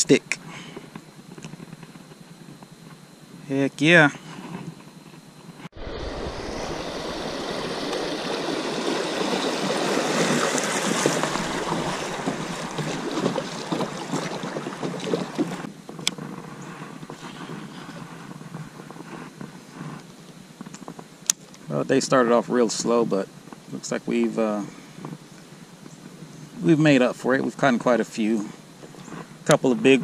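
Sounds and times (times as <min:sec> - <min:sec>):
paddle strokes splashing: 0:05.8 - 0:15.7
water lapping: 0:05.8 - 0:15.7
water rushing past hull: 0:05.8 - 0:15.7.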